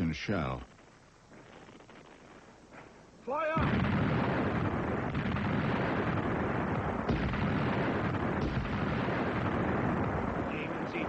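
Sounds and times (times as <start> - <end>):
artillery firing sharp reports: 3.3 - 11.0.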